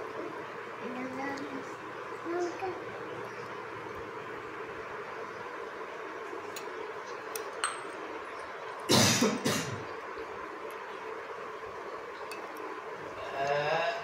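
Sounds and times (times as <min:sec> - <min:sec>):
young child coughing: 0:08.9 - 0:09.8.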